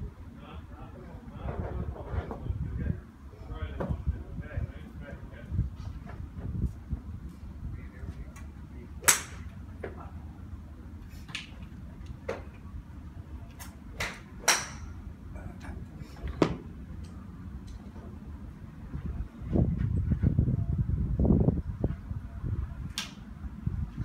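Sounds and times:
golf clubs striking balls: 8.3 - 10.0, 11.1 - 12.7, 13.5 - 18.2.

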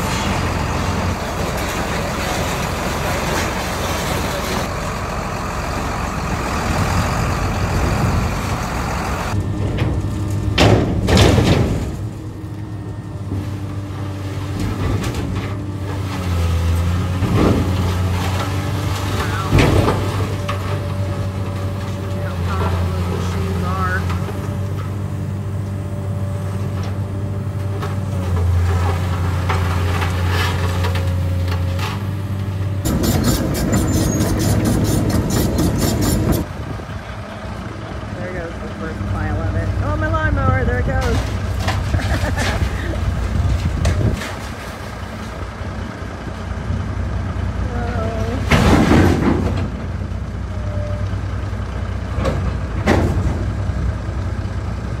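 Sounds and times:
heavy vehicle engine droning: 0.0 - 55.0
rough engine with fast rattle: 27.8 - 37.1.

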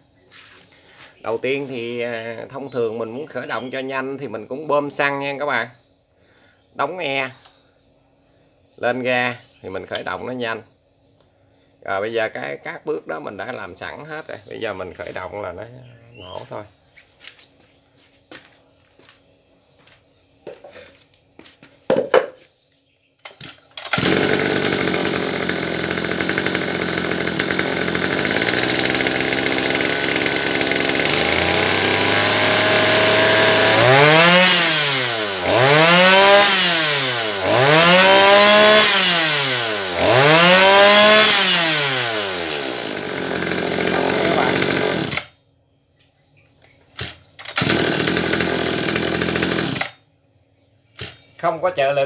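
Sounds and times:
pull starter cord: 23.2 - 45.3, 47.0 - 50.0, 51.0 - 51.2
brush cutter engine revving: 23.8 - 45.4, 47.0 - 50.0, 51.0 - 51.3.

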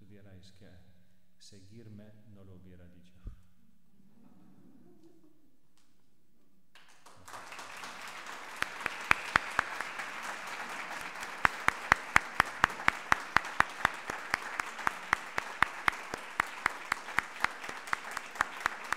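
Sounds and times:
audience applause: 6.8 - 18.9
sharp close hand claps: 6.8 - 18.9.

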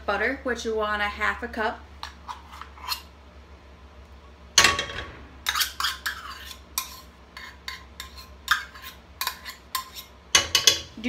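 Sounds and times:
metal spoon scraping metal cup: 5.5 - 10.8.

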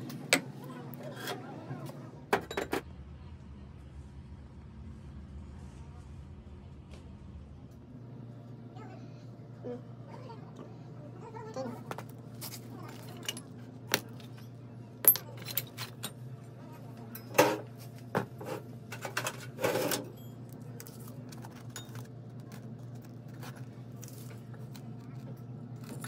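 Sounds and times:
metal parts clattering: 12.4 - 16.2
metal clinks and knocks: 12.8 - 16.2.

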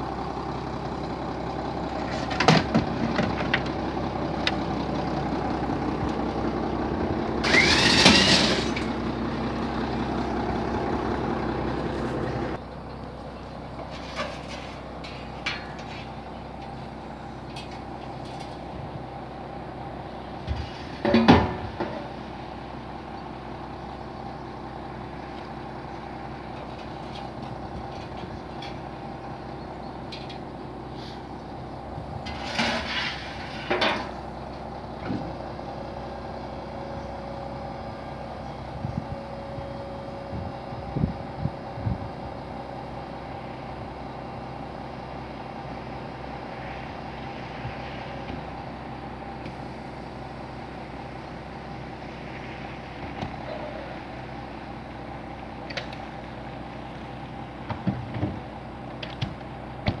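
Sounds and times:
bus engine idling: 0.0 - 60.0
metal ramps clattering: 7.4 - 9.0, 13.8 - 16.2.

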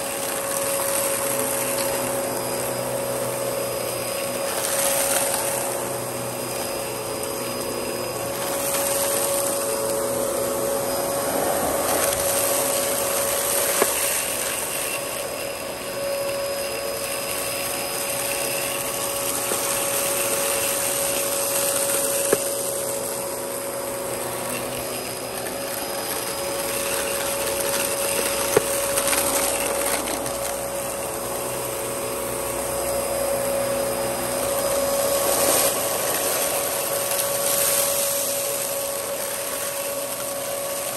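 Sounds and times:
vacuum cleaner running over carpet: 0.0 - 40.9.

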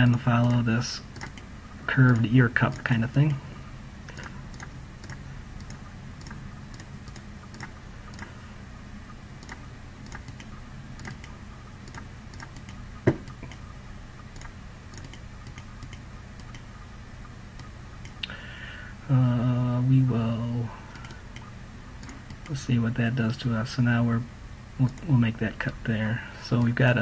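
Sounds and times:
low hum: 0.0 - 27.0
mouse buttons clicking: 4.2 - 8.3, 9.4 - 13.7, 14.3 - 16.7
loud knock: 13.0 - 13.3.

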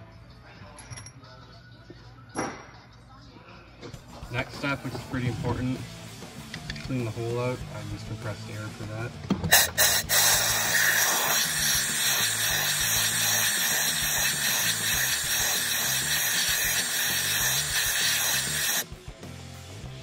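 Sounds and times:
compressed air blow gun hissing: 9.5 - 18.8.

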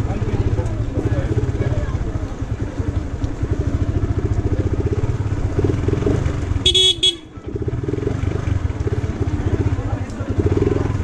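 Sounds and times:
motorcycle engine with loud exhaust: 0.0 - 11.0
horn honking: 6.6 - 7.4.

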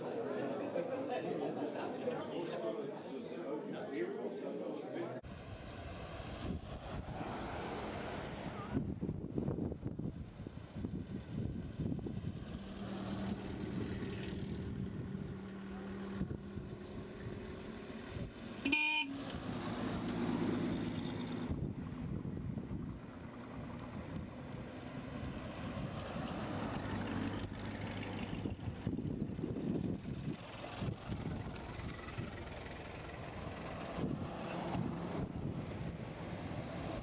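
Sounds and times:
cars passing slowly: 5.0 - 37.0
car horn toot: 18.6 - 19.2.

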